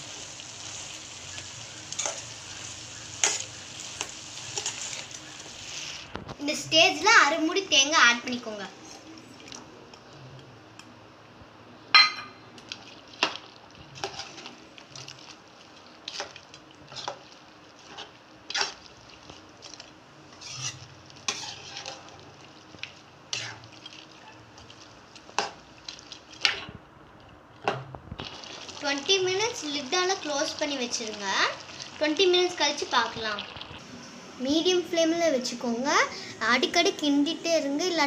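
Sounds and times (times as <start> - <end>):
gravy sizzling: 0.0 - 10.9, 11.8 - 38.0
metal ladle scraping a pot: 20.3 - 22.2, 23.3 - 24.4.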